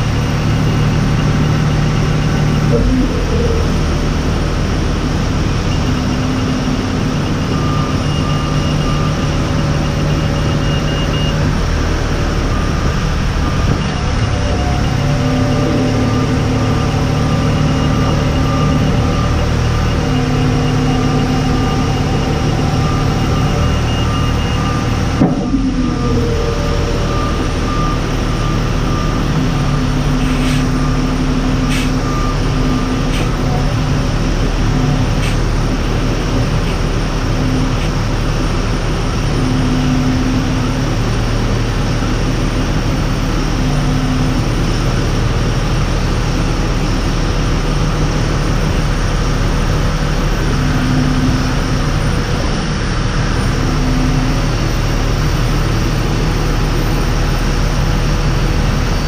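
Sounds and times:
pushback tug mechanical drone: 12.0s - 40.8s
clunk: 25.1s - 25.9s, 31.7s - 32.0s, 35.2s - 35.4s.

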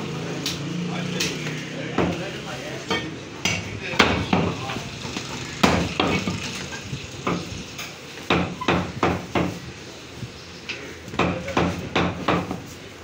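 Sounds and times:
cleaver chopping on wooden block: 11.1s - 12.6s.

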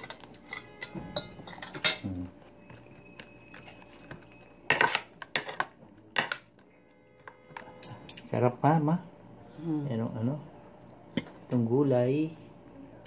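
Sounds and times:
cutlery clinking on plates: 0.0s - 2.2s.

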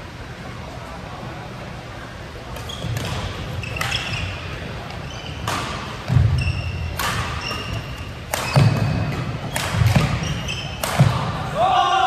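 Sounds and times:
racket hitting shuttlecock: 2.6s - 4.3s, 5.4s - 11.5s
shoe squeaks: 2.6s - 10.8s.

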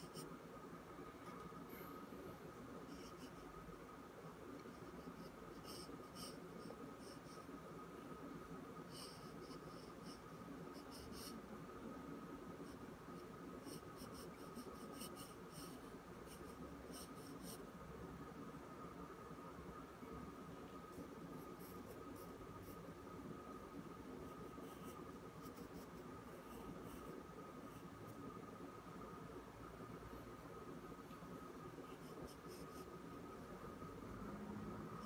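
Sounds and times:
faint steady hum: 0.0s - 35.0s
pencil scratching on paper: 4.6s - 7.5s, 12.6s - 17.6s, 31.8s - 33.2s.

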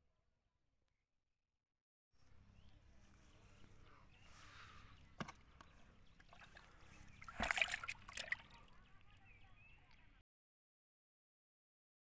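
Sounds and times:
faint outdoor ambience: 2.2s - 10.2s.

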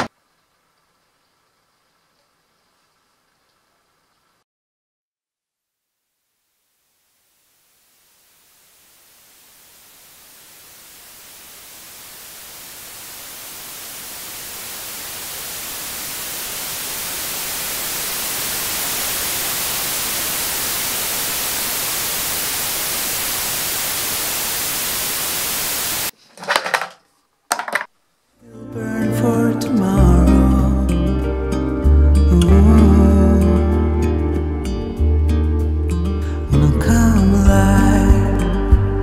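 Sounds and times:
white noise hiss: 0.0s - 4.4s, 5.7s - 26.6s.

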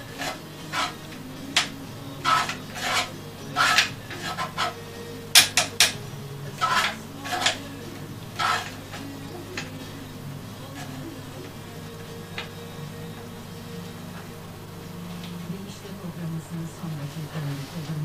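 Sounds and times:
file rasping on metal part: 0.1s - 6.0s, 6.6s - 7.6s, 8.4s - 9.0s.

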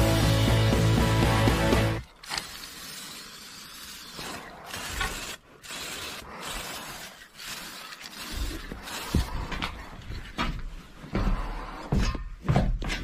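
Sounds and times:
spray-paint can hissing: 2.3s - 9.3s.

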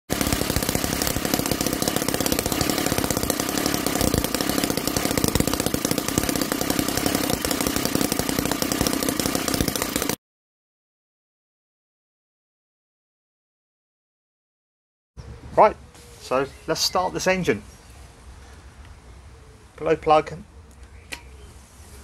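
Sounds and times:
model engine running: 0.1s - 10.2s.

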